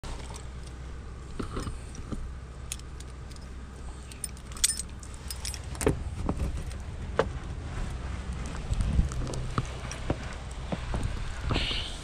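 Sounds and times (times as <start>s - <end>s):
keys jingling: 2.7s - 5.8s.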